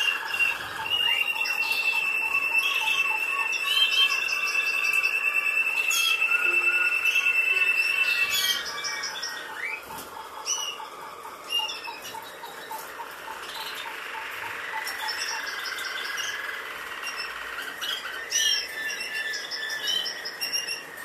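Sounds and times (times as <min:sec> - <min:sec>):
steady high tone: 0:00.0 - 0:17.4
goldfinches chirping and twittering: 0:00.0 - 0:21.0.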